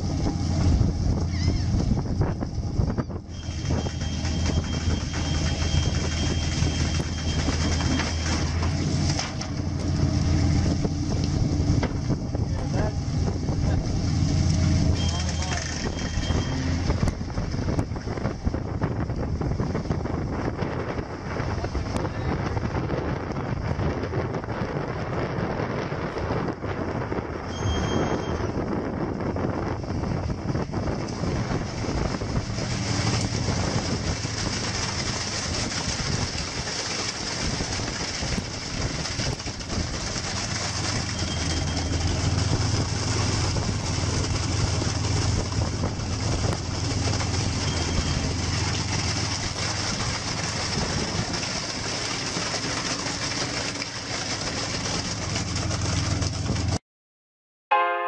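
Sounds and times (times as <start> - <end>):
rushing water: 0.0 - 23.0, 30.4 - 56.8
boat engine humming: 0.0 - 56.8
wind: 0.0 - 56.8
short high beeps: 14.9 - 16.7, 27.5 - 28.5.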